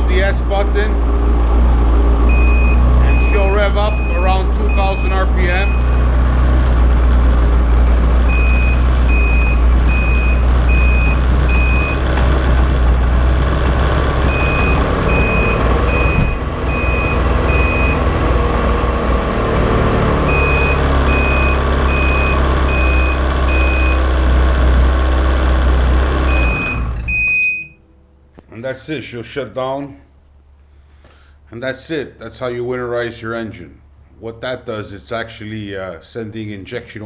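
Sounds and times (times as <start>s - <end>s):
short high beeps: 2.3s - 6.0s.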